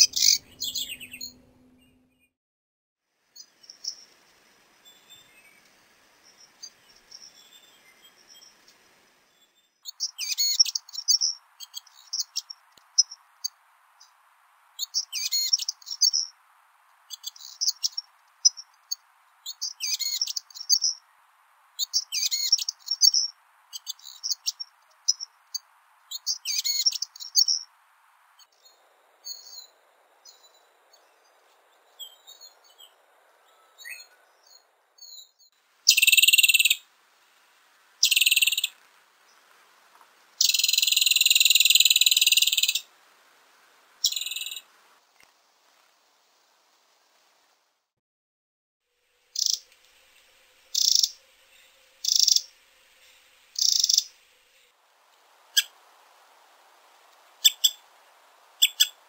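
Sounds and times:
wren singing trilled phrases: 0.0s - 1.9s, 9.8s - 14.1s, 14.8s - 16.3s, 17.0s - 21.1s, 21.8s - 27.7s, 35.9s - 36.8s, 38.0s - 38.8s, 40.4s - 42.9s, 44.0s - 44.6s, 49.4s - 49.7s, 50.7s - 51.2s, 52.0s - 52.5s, 53.6s - 54.1s, 57.4s - 57.8s, 58.6s - 59.0s
harsh buzzy bird calls: 0.0s - 2.0s, 17.0s - 21.2s, 49.3s - 49.7s, 50.7s - 54.6s.

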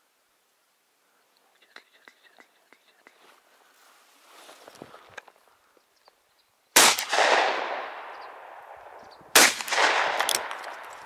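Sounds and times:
gunshot echo: 6.8s - 11.0s
shotgun shots: 6.8s - 11.0s.

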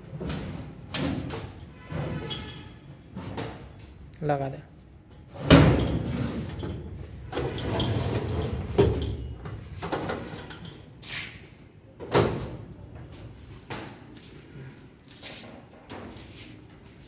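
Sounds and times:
metal drawer banging shut: 5.4s - 6.4s
drawer sliding scrape: 7.4s - 8.8s.

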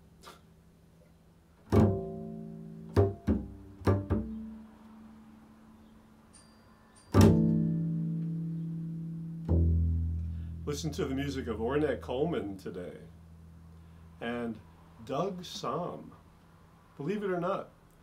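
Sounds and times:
double bass strings plucked: 1.6s - 4.8s, 7.1s - 13.7s.

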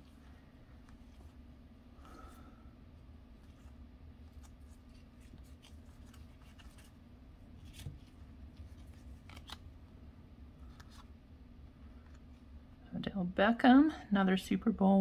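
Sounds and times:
trading cards clicking and swishing: 7.6s - 9.6s.

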